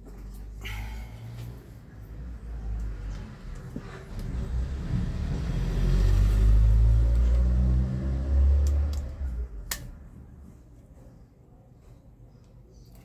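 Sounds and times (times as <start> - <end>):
vehicle engine passing by: 1.2 - 9.7.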